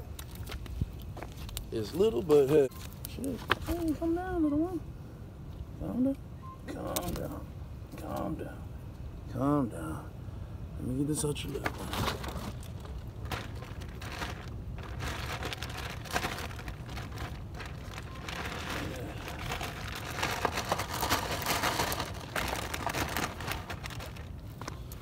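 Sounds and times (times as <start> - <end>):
crackling glove handling noise: 0.0 - 4.1, 11.4 - 25.0
low wind rumble: 7.4 - 25.0.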